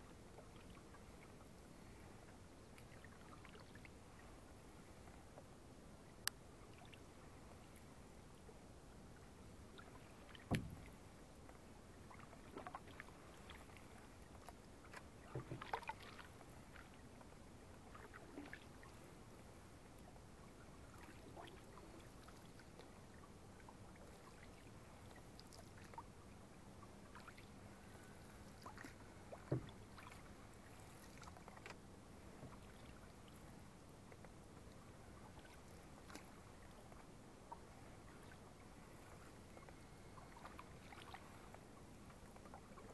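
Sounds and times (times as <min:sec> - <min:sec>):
paddles dipping in water: 0:00.0 - 0:42.9
paddle knocks and splashes: 0:10.2 - 0:11.1, 0:14.4 - 0:16.8, 0:28.6 - 0:31.7.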